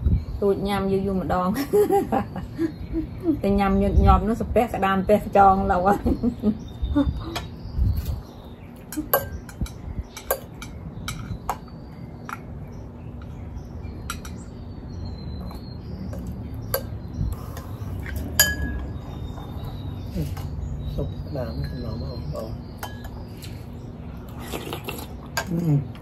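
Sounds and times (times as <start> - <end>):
utensils clinking on ceramic bowls: 8.9 - 11.6, 18.0 - 19.1.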